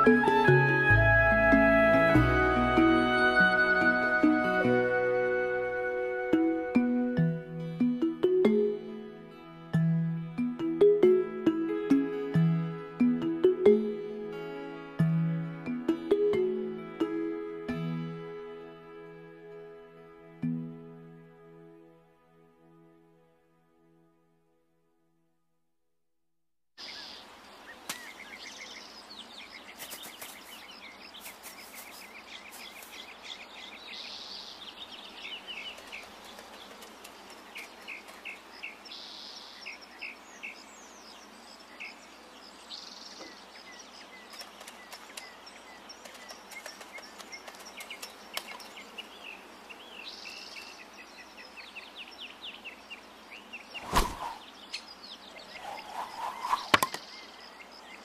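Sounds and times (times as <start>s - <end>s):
outdoor background hiss: 0.0s - 24.7s, 26.8s - 58.0s
birds chirping: 26.8s - 58.0s
sharp thud: 53.8s - 54.4s.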